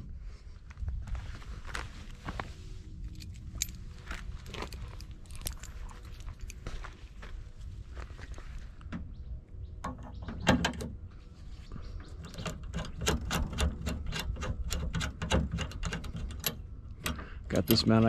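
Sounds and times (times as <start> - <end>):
metal clicking and rattling: 12.2 - 18.0.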